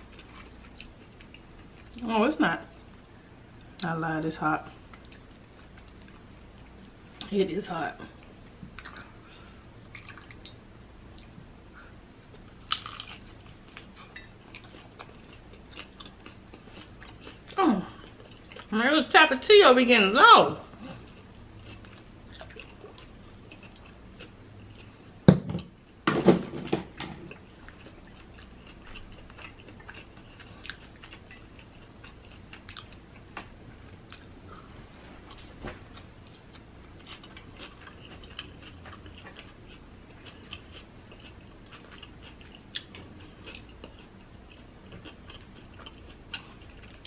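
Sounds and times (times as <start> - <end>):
person chewing: 0.0 - 2.0, 9.8 - 11.4, 12.2 - 18.7, 20.8 - 25.1, 27.3 - 33.4, 34.0 - 34.4, 35.3 - 47.0
tortilla crunching: 12.2 - 18.7.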